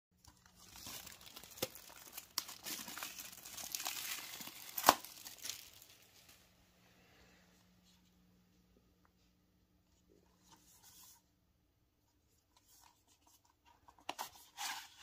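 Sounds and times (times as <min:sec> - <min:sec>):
plastic shrink-wrap crinkling: 0:00.2 - 0:06.4.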